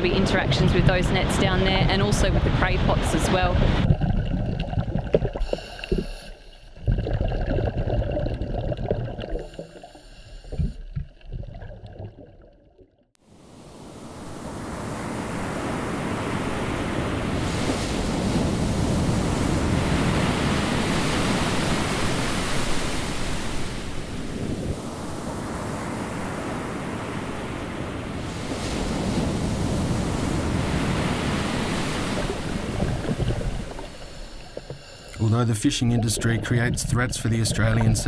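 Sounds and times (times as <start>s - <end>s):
surf washing over rocky shore: 13.5s - 36.5s.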